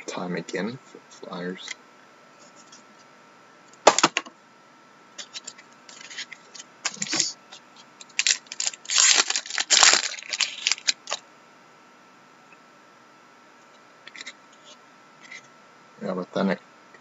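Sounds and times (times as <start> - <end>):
foil wrapper tearing and crinkling: 8.1 - 11.2.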